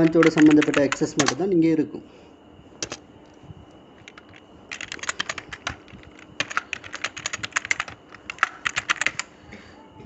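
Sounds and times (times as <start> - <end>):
computer keyboard typing: 0.0 - 1.4, 2.8 - 3.0, 4.0 - 9.3.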